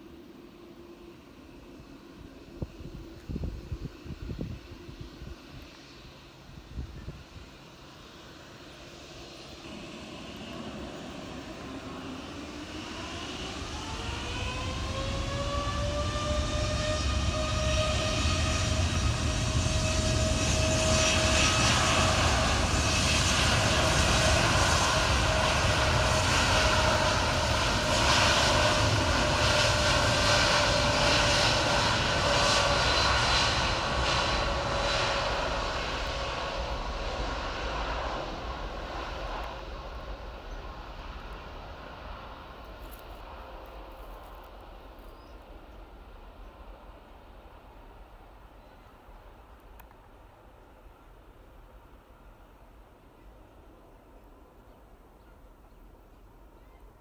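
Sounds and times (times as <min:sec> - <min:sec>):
jet engine roar: 0:00.0 - 0:54.6
jet engine whine: 0:00.0 - 0:57.0.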